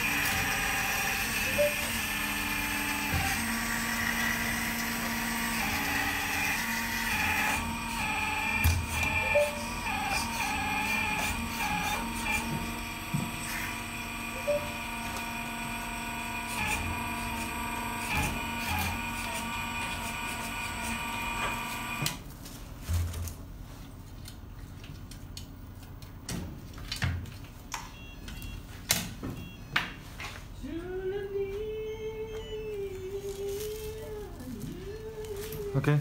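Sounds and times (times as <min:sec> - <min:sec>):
hydraulic pump whine: 0:00.0 - 0:22.2.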